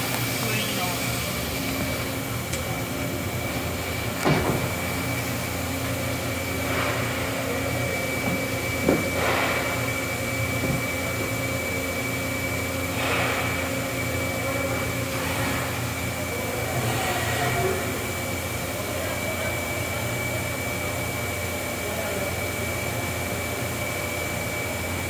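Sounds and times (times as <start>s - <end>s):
machine hum with high whine: 0.0s - 25.0s.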